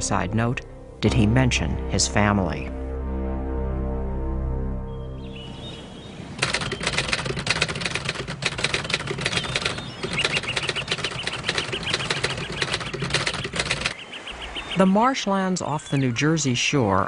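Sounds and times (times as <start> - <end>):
short bird chirping calls: 5.2 - 7.1, 9.2 - 16.2
birds flapping wings: 6.4 - 14.0.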